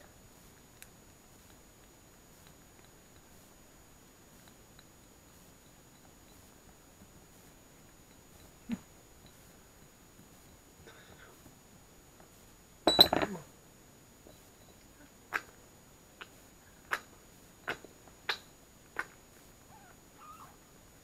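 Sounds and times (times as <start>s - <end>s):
ceramic dishes clattering on wood: 12.9s - 13.3s
sharp clinks against dishes: 12.9s - 13.4s.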